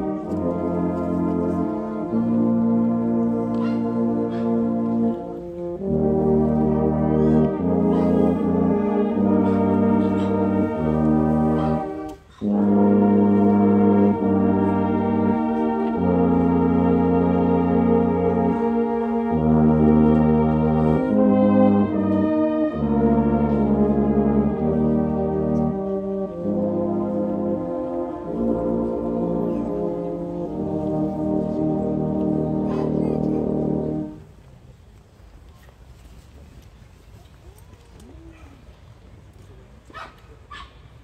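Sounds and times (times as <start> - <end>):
brass band playing slow chords: 0.0 - 34.6.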